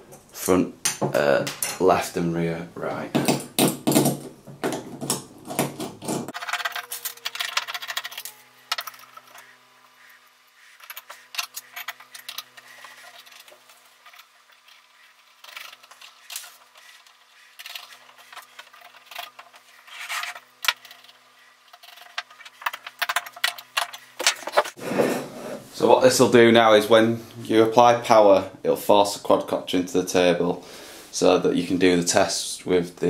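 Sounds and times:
small metal parts clattering on wood: 6.3 - 9.4, 17.6 - 24.8.

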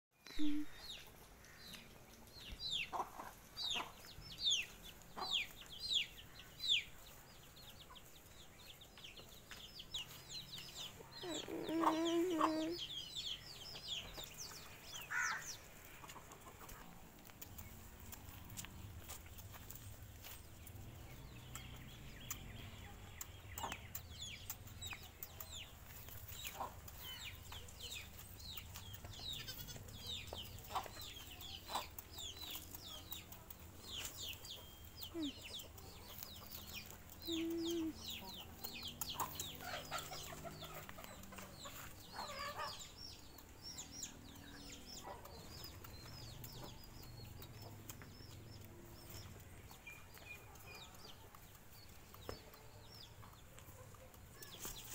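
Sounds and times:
birds chirping: 0.2 - 54.9.

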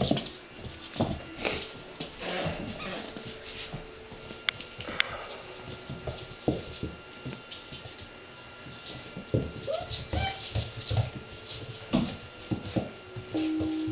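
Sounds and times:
puppy whimper: 9.6 - 10.5.

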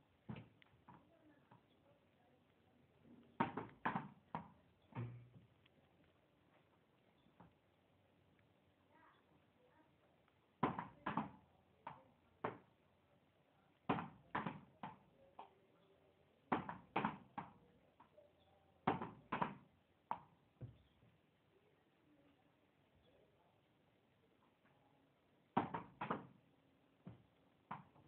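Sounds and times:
ball bouncing and being struck: 3.4 - 5.3, 10.6 - 12.6, 13.9 - 15.0, 16.5 - 17.5, 18.9 - 20.7, 25.6 - 26.3.

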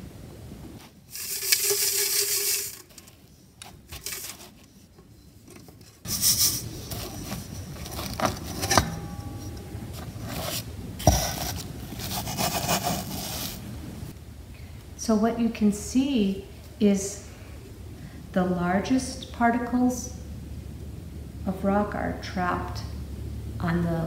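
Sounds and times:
sand and rock rattling in sieves: 0.8 - 4.9.

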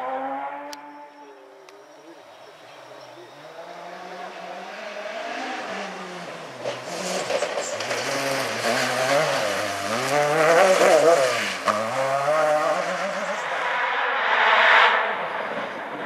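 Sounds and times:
rally car engine revving: 3.3 - 16.0.

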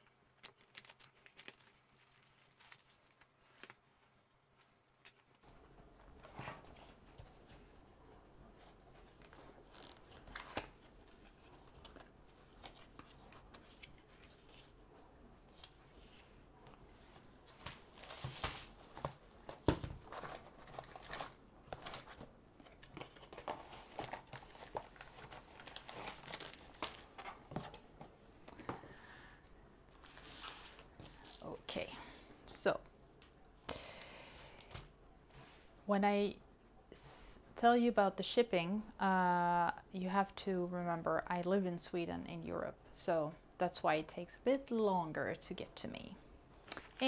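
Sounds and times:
plastic packaging crinkling: 0.0 - 5.4, 17.6 - 27.9.

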